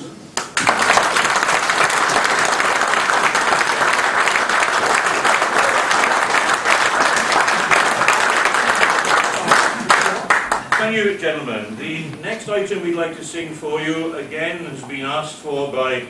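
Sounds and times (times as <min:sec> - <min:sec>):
audience applauding: 0:00.4 - 0:10.9.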